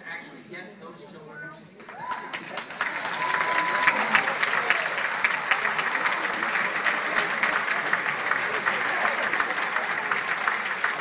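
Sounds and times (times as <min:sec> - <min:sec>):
audience applause: 0:01.8 - 0:11.0.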